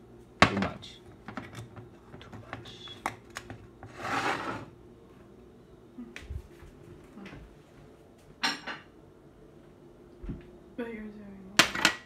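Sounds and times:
kitchen handling noises: 0:00.4 - 0:04.7, 0:11.6 - 0:12.0.

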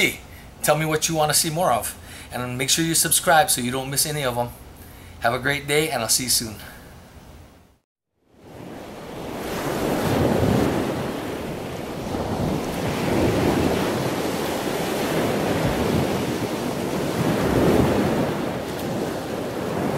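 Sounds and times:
breaking ocean waves: 0:08.3 - 0:19.9.

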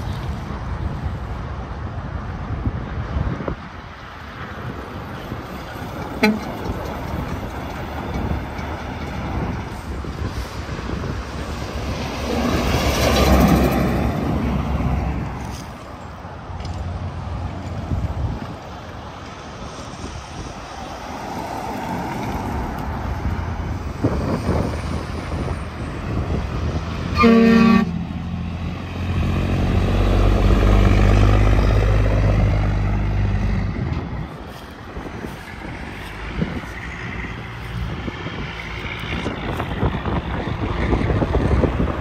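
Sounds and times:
heavy truck passing: 0:00.0 - 0:42.0
highway traffic noise: 0:00.0 - 0:42.0
truck horn blast: 0:06.2 - 0:06.6, 0:27.1 - 0:28.1.

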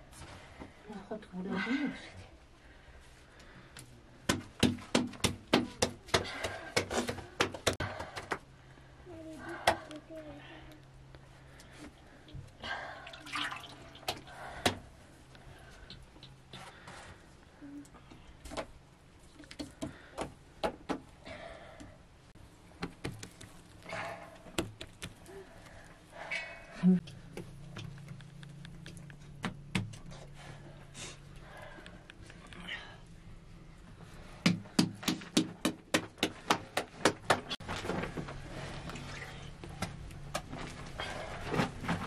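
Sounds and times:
hands slapping dough: 0:04.2 - 0:08.4, 0:34.4 - 0:37.6.

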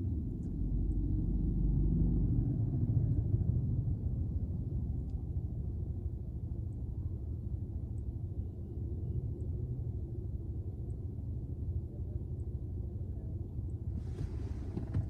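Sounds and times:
vehicle engine idling: 0:09.3 - 0:15.0.

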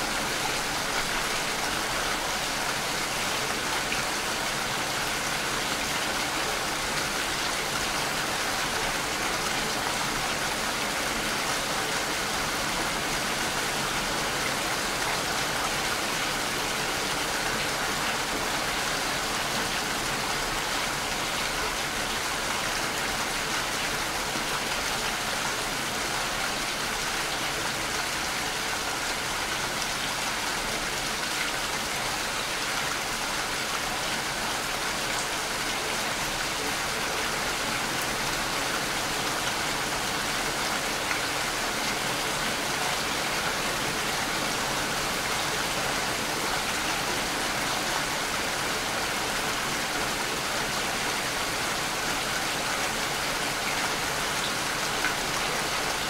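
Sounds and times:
steady rain falling: 0:00.0 - 0:56.0.

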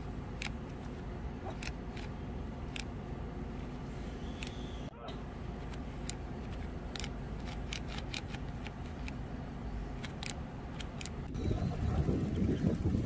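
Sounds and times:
bike gear shifter clicking: 0:05.7 - 0:09.2, 0:10.0 - 0:11.2
wind rumble on microphone: 0:11.3 - 0:13.0.

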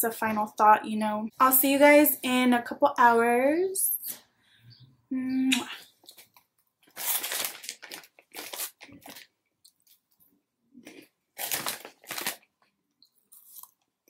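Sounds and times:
plastic snack bag crinkling: 0:06.0 - 0:10.1, 0:10.8 - 0:13.8
crunchy chewing: 0:13.0 - 0:13.9.

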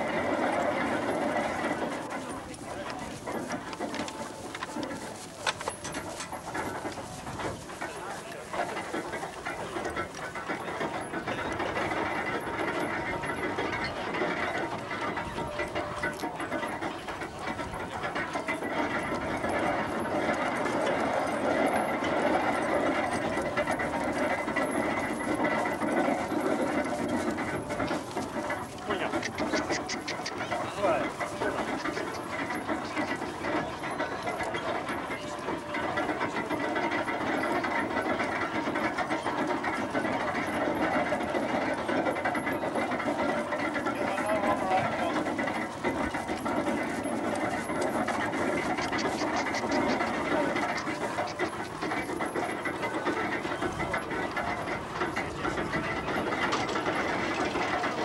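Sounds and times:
gearing clattering: 0:00.0 - 0:58.0
animal noise: 0:28.9 - 0:34.0, 0:48.3 - 0:51.9.

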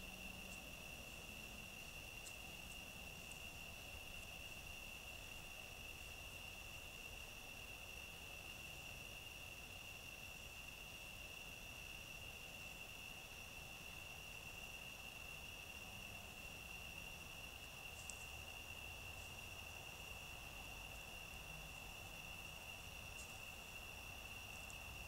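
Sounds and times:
crickets trilling: 0:00.0 - 0:25.0
faint ticks: 0:02.2 - 0:03.4, 0:17.8 - 0:18.5, 0:22.8 - 0:23.5, 0:24.2 - 0:25.0.

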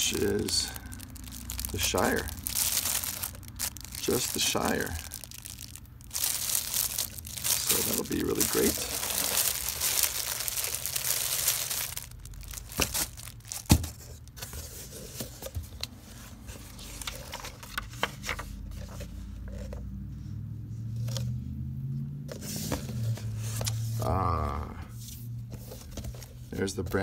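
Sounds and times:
plastic shrink-wrap crinkling: 0:00.0 - 0:14.3
items knocking in cardboard box: 0:12.7 - 0:14.0.

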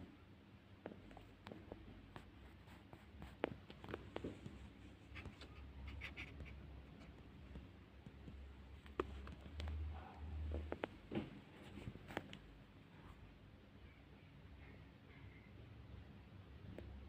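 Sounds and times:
fingers clicking and tapping laptop: 0:03.2 - 0:04.6, 0:05.2 - 0:09.8.

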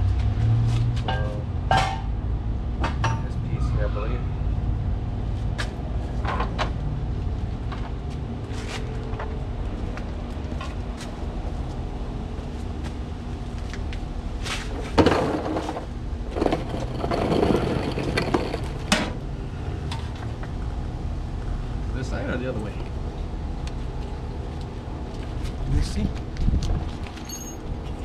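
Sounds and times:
scraping rustle: 0:14.4 - 0:19.0
steady low rumble: 0:15.8 - 0:28.0.

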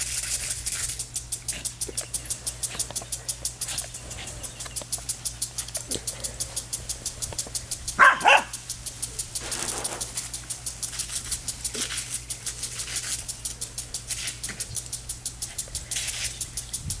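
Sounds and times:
hiss of sprinkler spray: 0:00.0 - 0:04.2, 0:05.0 - 0:17.0
impact sprinkler ticking: 0:04.8 - 0:16.8
dog barking: 0:08.0 - 0:08.6.

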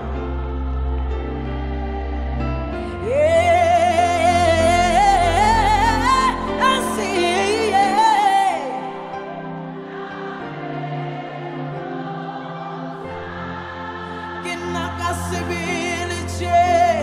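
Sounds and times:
held accompaniment chords: 0:00.0 - 0:17.0
person singing with vibrato: 0:02.8 - 0:11.0, 0:13.4 - 0:17.0.

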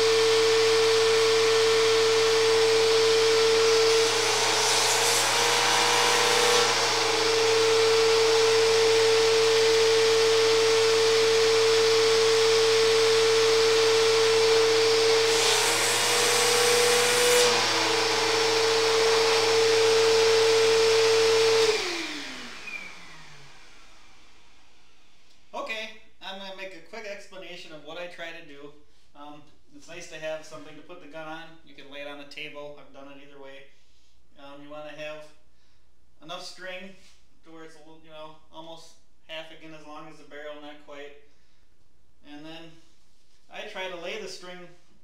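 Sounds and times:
vacuum cleaner running: 0:00.0 - 0:25.2.

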